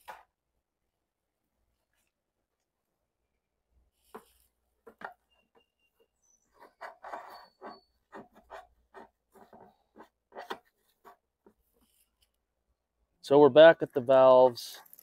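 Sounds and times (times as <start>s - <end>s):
cable scraping against plastic: 6.4s - 12.4s.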